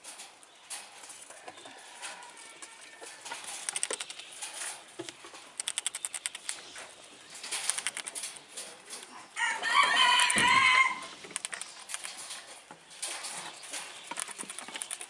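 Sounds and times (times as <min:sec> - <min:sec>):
rooster crowing: 0:01.7 - 0:03.2, 0:09.4 - 0:11.1
light clicks: 0:05.0 - 0:06.7, 0:13.8 - 0:15.0.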